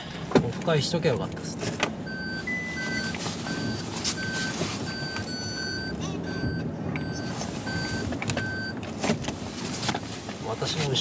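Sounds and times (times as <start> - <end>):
low vehicle rumble: 0.0 - 11.0
reversing warning beeps: 2.0 - 8.8.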